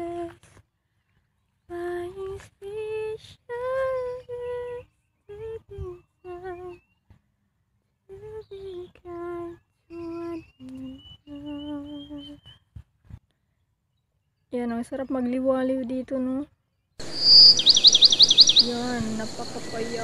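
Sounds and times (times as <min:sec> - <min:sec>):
woman humming: 0:18.6 - 0:20.0.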